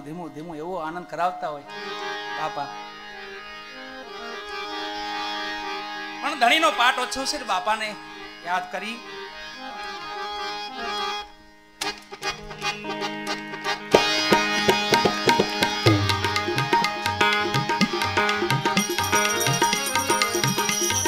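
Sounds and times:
harmonium holding notes: 0.0s - 21.0s
tabla rhythmic beat: 13.9s - 21.0s.

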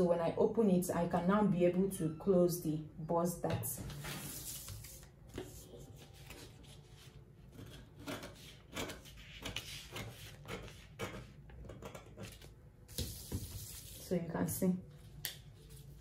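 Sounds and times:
paper rustling: 3.9s - 7.2s.

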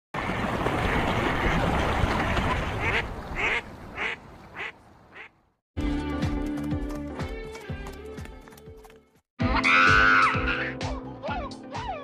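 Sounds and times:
waterfowl quacking: 2.3s - 5.4s.

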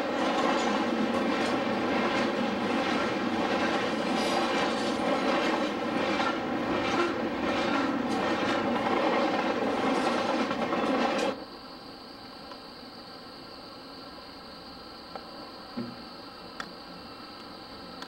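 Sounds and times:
train wheels rumbling on rail: 0.0s - 11.4s.

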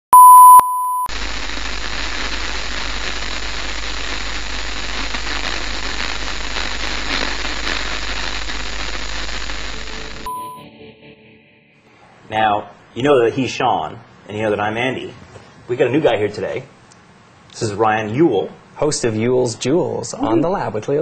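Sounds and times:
test tone: 0.1s - 1.1s, 10.2s - 10.7s
steady static hiss: 1.1s - 10.3s, 11.9s - 21.0s.

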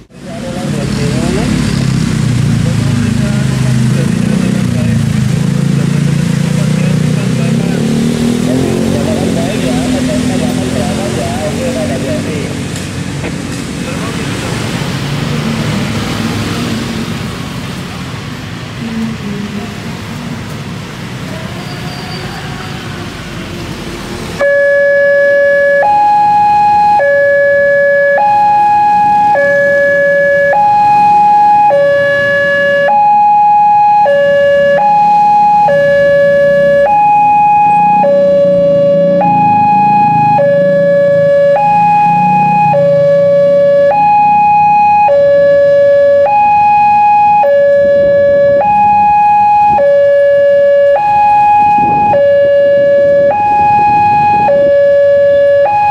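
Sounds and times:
road traffic: 0.0s - 55.9s
two-tone warning siren: 7.5s - 12.2s, 24.3s - 55.9s.

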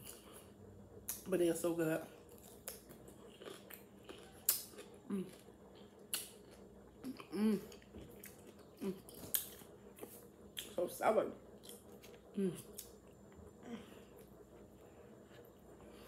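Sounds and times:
crunchy chewing of pickle: 2.2s - 10.8s.

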